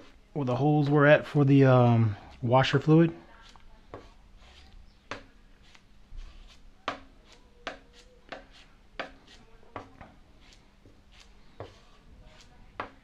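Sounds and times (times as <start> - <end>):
spreader tapping and scraping filler: 3.3 - 13.0.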